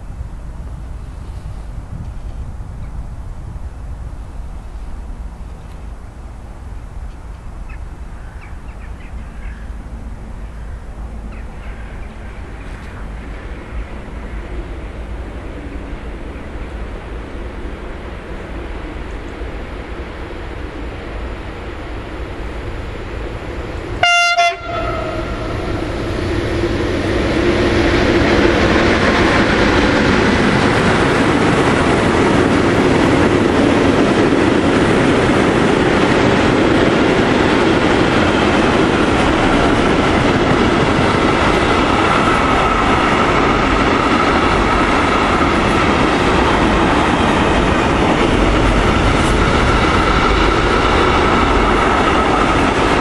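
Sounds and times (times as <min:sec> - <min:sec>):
freight train rolling past: 0:00.0 - 0:53.0
train horn blast: 0:24.0 - 0:26.0.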